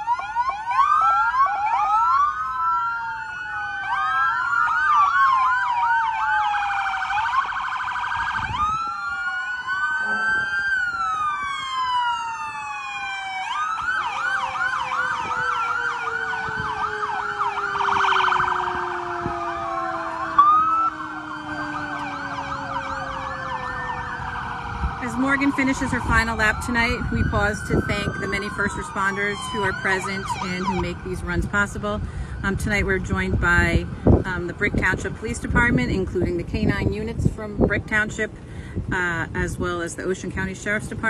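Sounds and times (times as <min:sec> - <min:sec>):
emergency sirens wailing and yelping: 0:00.0 - 0:41.0
long falling tone: 0:08.5 - 0:24.4.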